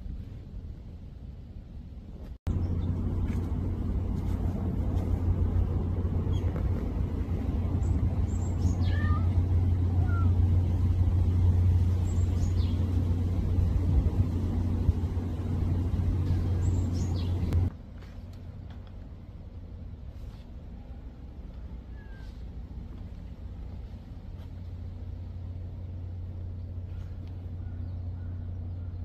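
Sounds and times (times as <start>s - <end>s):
low rumble: 0.0s - 29.0s.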